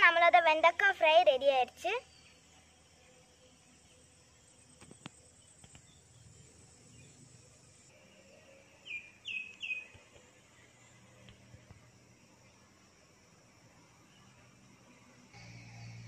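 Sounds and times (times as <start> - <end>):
bird calling: 8.8 - 10.0.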